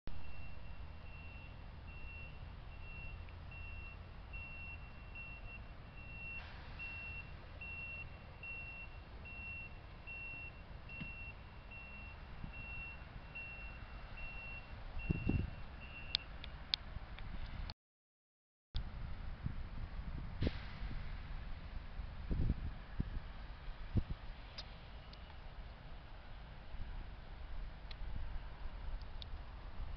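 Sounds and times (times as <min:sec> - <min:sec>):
reversing alarm beeping: 0:00.1 - 0:16.3
low steady rumble: 0:18.8 - 0:29.9.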